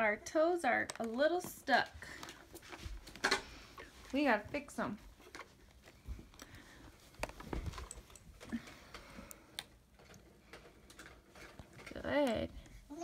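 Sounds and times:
plastic toys clicking and knocking: 7.2s - 12.7s.

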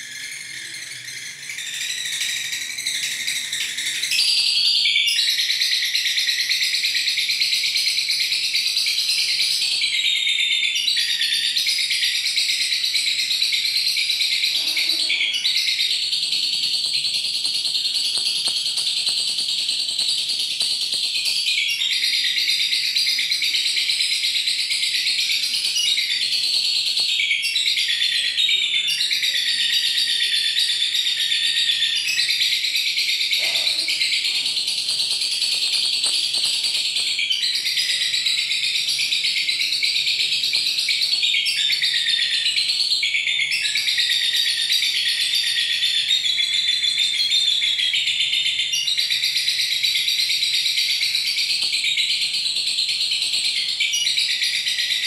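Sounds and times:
lovebird chattering trill: 12.0s - 31.2s, 32.0s - 47.0s.

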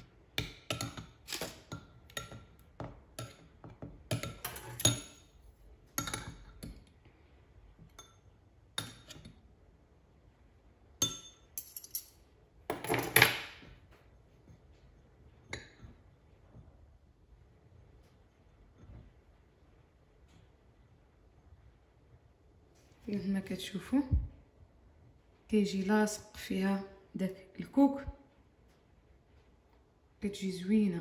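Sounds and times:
cutlery clinking on ceramic bowls: 0.0s - 5.3s, 6.0s - 6.9s, 7.8s - 9.4s, 11.0s - 13.5s.

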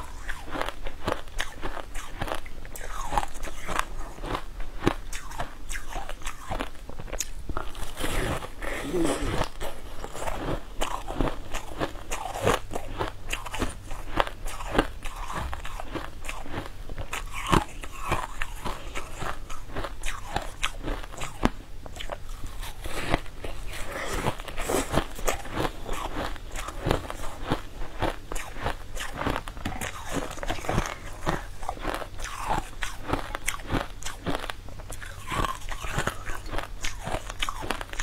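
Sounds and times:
biting and chewing crunchy food: 0.0s - 38.0s.

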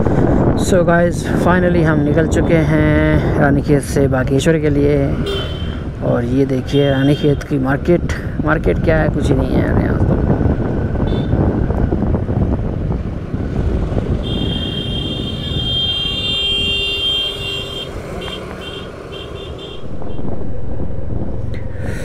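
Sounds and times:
motorcycle engine and road rumble: 0.0s - 22.0s
vehicle horn: 5.2s - 5.8s, 11.0s - 11.4s, 14.2s - 20.2s.

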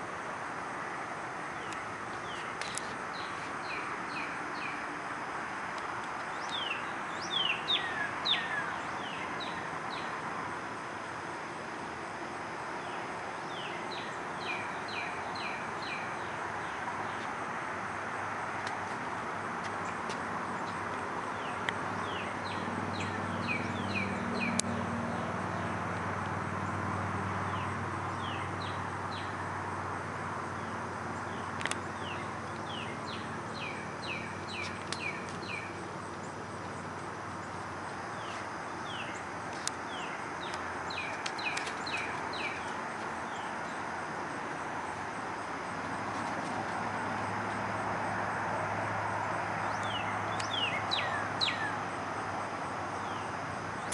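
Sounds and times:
steady background noise: 0.0s - 53.9s
bird singing whistled notes: 6.4s - 10.1s, 49.7s - 51.8s.

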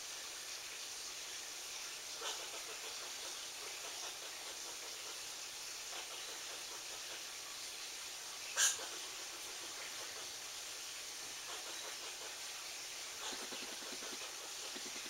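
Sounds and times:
steady background hiss: 0.0s - 15.0s
squirrel calls: 8.6s - 9.0s, 13.2s - 15.0s.

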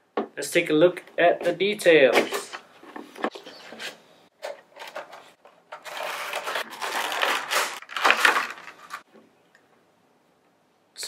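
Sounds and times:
plastic and cardboard crinkling: 3.2s - 9.1s.

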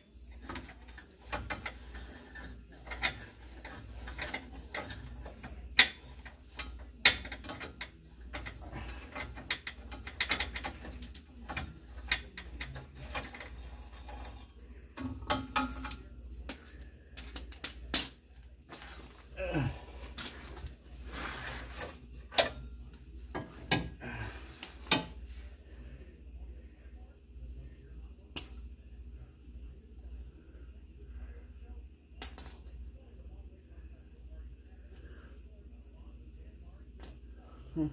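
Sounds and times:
metal clicks of ratchet tools: 0.4s - 14.2s.

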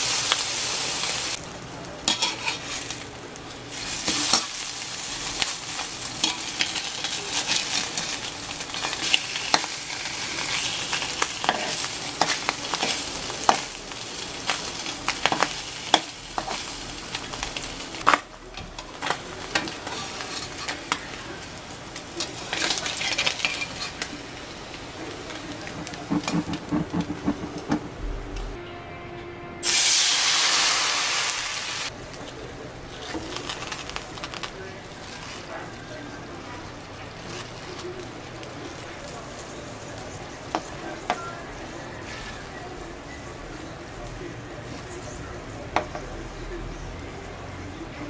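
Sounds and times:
meat sizzling in a metal pan: 0.0s - 27.4s, 29.6s - 32.0s, 33.0s - 44.0s
metal spatula tapping and scraping: 2.1s - 2.7s, 11.4s - 13.8s, 15.2s - 16.6s, 17.3s - 21.1s, 25.3s - 28.5s.

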